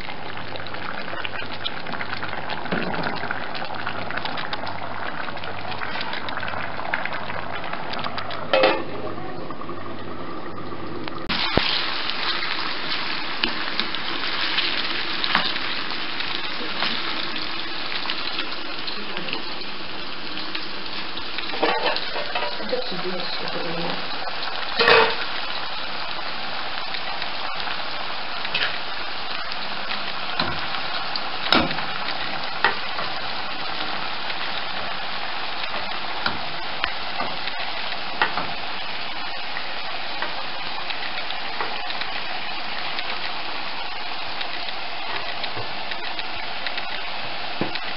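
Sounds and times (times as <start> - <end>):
food sizzling and bubbling in pot: 0.0 - 47.9
knocks and clinks against pot: 8.5 - 9.0.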